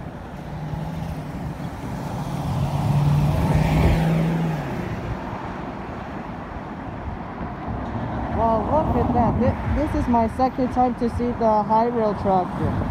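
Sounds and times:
vehicle passing by: 0.0s - 6.4s.

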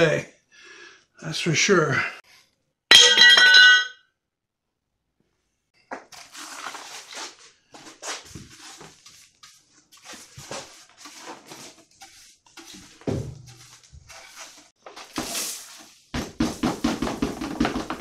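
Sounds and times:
brush sweeping grit on wood: 8.0s - 16.0s.

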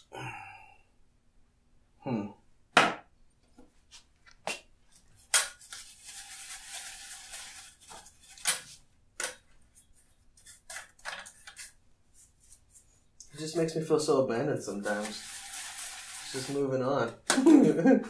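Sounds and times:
paintbrush strokes on canvas: 14.6s - 16.8s.

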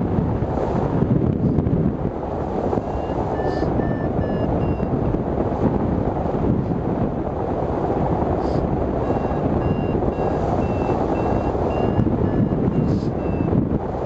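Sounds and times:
wind rushing over microphone: 0.0s - 14.0s
variometer beeping: 2.8s - 4.9s, 9.0s - 13.6s.

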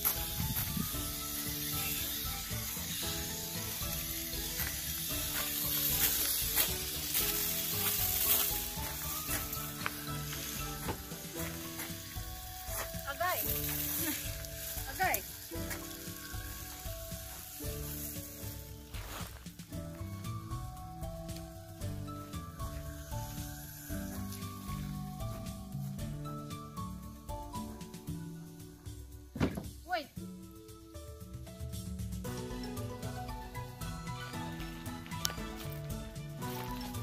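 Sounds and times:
water hissing through brush: 0.0s - 19.7s
background music: 0.0s - 37.0s
brush scrubbing car: 2.8s - 15.8s.

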